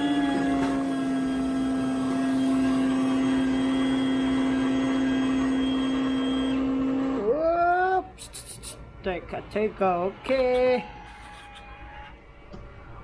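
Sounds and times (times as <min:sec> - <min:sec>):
coffee machine motor hum: 0:00.0 - 0:07.7.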